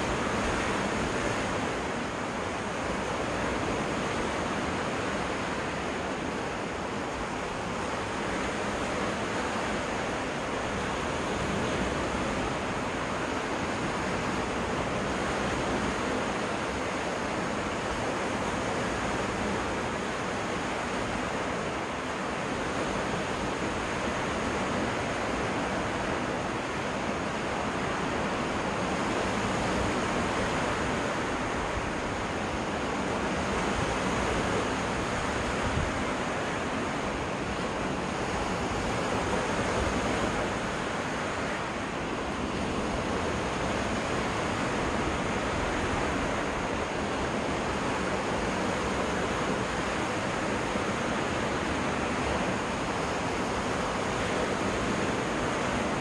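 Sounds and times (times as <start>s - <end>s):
waves washing onto beach: 0.0s - 56.0s.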